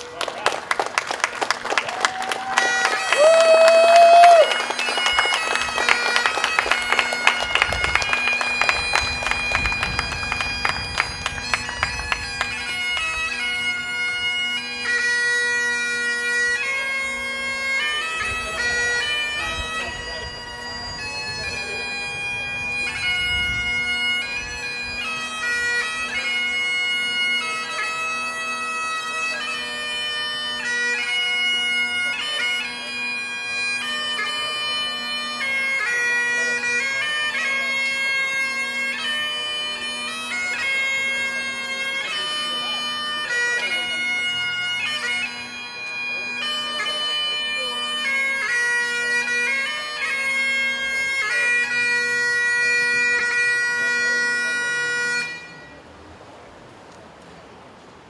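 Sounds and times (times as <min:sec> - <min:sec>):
bagpipes playing slow tune: 0:02.6 - 0:55.9
sharp claps or taps: 0:04.2 - 0:13.1.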